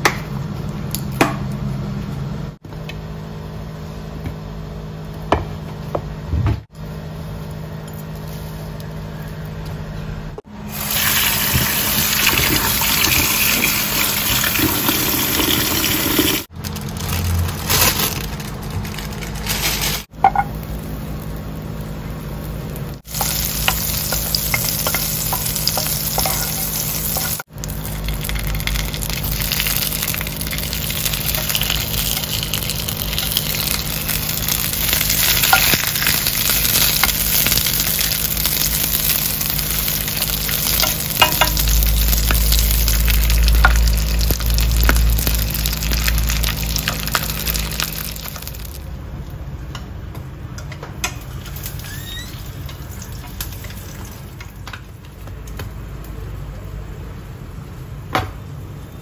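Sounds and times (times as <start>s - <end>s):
food sizzling in a pan: 10.7s - 16.5s, 20.0s - 48.8s.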